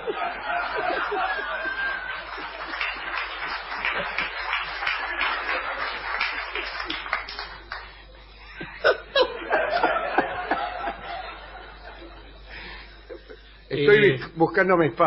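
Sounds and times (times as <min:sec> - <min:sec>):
audience clapping: 0:00.0 - 0:08.1
audience laughing: 0:00.0 - 0:13.6.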